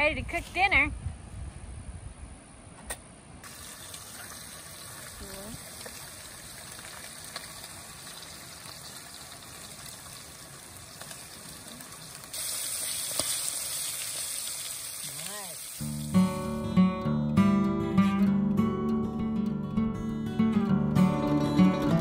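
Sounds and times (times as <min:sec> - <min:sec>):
fish frying in oil: 0:03.4 - 0:16.0.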